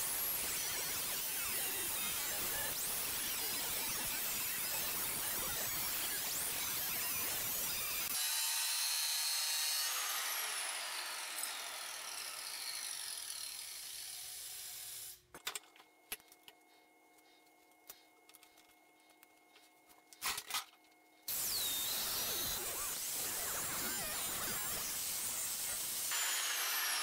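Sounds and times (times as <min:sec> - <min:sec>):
angle grinder cutting steel: 0:00.0 - 0:15.2, 0:21.3 - 0:27.0.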